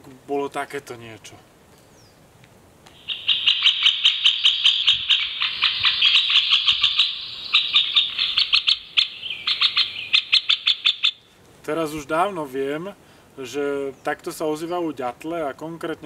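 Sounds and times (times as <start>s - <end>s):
woodpecker calling: 2.9s - 11.4s.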